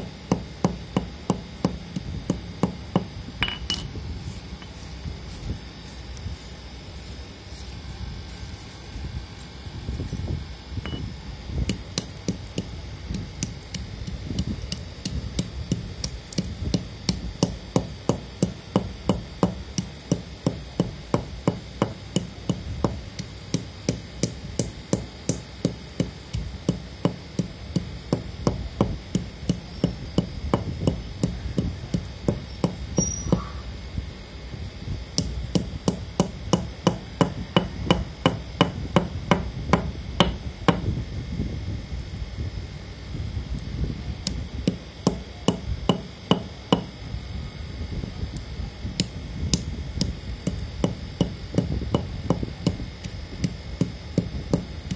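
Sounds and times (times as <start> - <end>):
metal pestle crushing dry clay: 10.8 - 33.6, 49.0 - 54.9.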